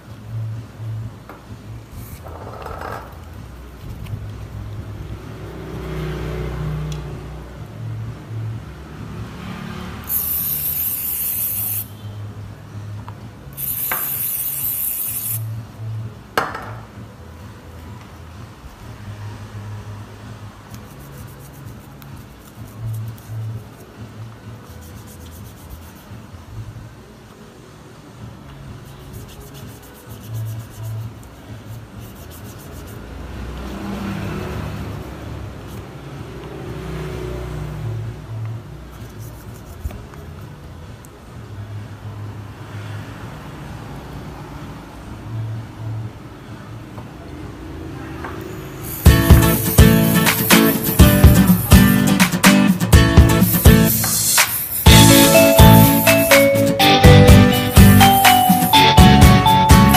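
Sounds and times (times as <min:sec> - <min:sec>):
aerosol spray can hissing: 0:10.1 - 0:11.9, 0:13.6 - 0:15.4, 0:48.8 - 0:52.1, 0:53.4 - 0:55.5
background music with bass line: 0:49.0 - 0:59.9.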